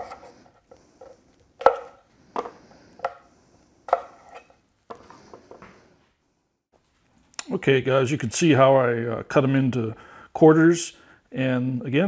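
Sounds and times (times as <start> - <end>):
knife striking wooden cutting board: 1.6 - 3.2, 3.9 - 5.0.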